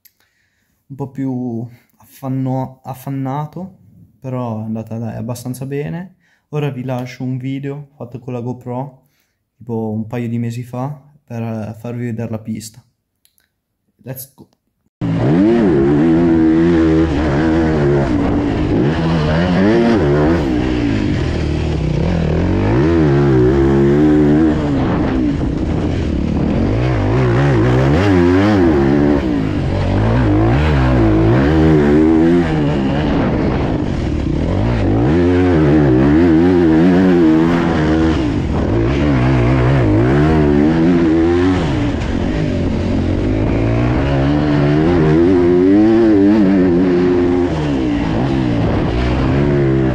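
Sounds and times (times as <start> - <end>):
motorbike engine revving: 15.0 - 49.9.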